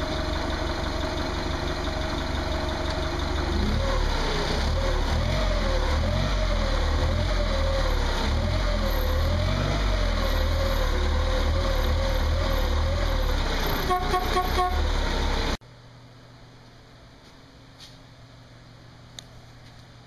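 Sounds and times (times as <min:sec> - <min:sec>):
forklift engine running: 0:00.0 - 0:15.6.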